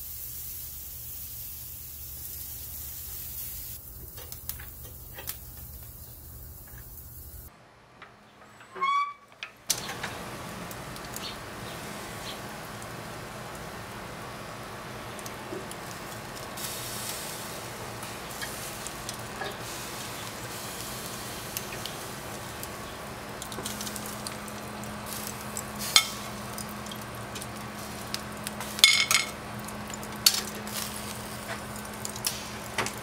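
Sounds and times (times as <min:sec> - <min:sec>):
meat sizzling on a grill: 0:00.0 - 0:07.5, 0:09.8 - 0:33.0
metal skewers clinking on grate: 0:28.6 - 0:29.4, 0:30.0 - 0:30.8.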